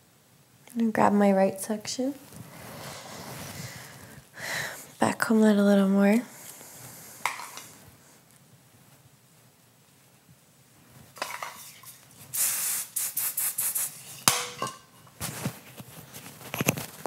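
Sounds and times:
aerosol hairspray hissing: 11.7 - 14.3.

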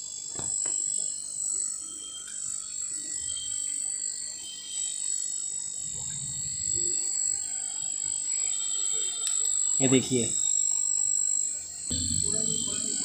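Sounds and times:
high-pitched insect chorus: 0.0 - 13.0
soft low rumbles: 11.9 - 13.0.

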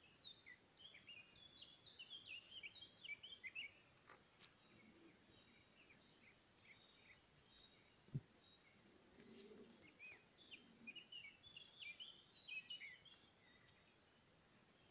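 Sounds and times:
brief thump: 8.1 - 8.3.

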